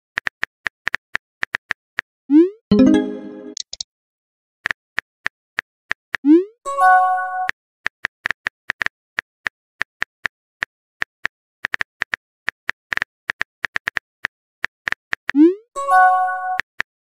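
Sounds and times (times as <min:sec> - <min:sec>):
chime-like tone: 0:02.7 - 0:03.6.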